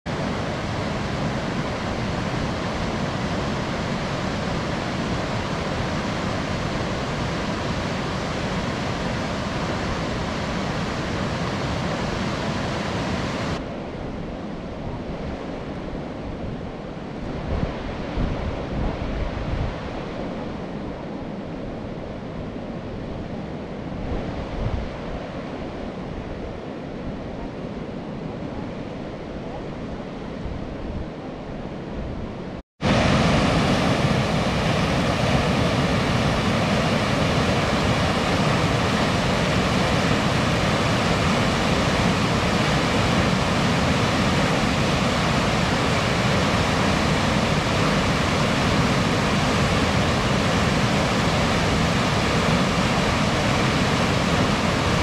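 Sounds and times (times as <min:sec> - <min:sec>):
river water rushing over weir: 0:00.1 - 0:13.7, 0:32.8 - 0:55.0
wind buffeting microphone: 0:00.1 - 0:55.0.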